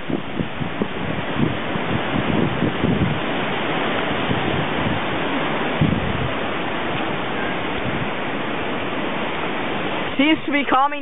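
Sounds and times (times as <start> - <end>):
wind buffeting microphone: 0.0 - 11.0
wind rushing through leaves: 0.0 - 11.0.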